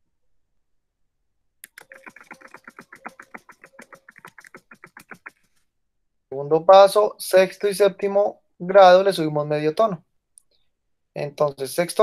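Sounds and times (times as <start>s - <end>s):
typing on computer keyboard: 1.6s - 5.3s.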